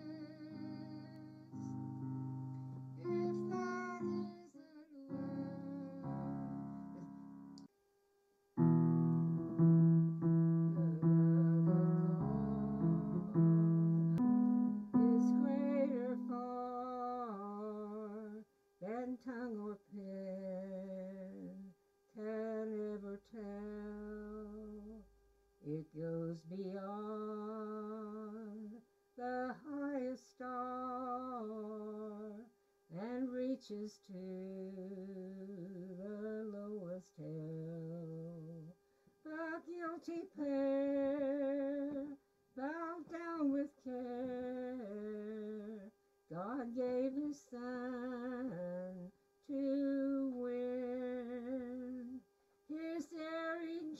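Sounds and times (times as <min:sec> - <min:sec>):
elderly woman singing a hymn: 0:00.0 - 0:01.8, 0:03.0 - 0:06.6, 0:10.7 - 0:13.3, 0:14.9 - 0:25.0, 0:25.6 - 0:53.9
piano accompaniment: 0:00.0 - 0:04.5, 0:05.1 - 0:07.6, 0:08.6 - 0:16.6.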